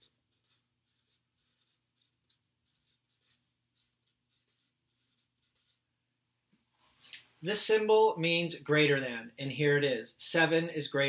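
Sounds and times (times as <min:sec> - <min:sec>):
marker scratching on paper: 0:00.0 - 0:05.9.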